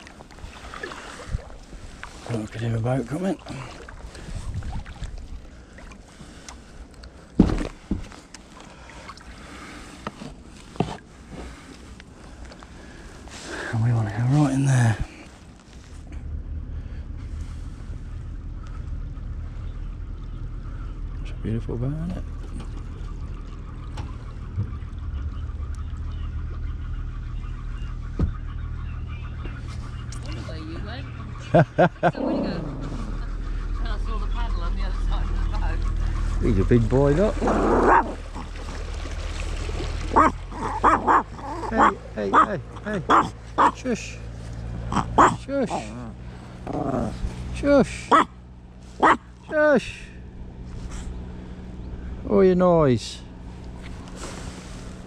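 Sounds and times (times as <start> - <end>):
kayak paddling on water: 0.0 - 13.8, 22.2 - 52.3, 53.3 - 55.0
low thump: 7.4 - 8.0, 28.1 - 28.5
diesel engine humming: 11.1 - 55.0.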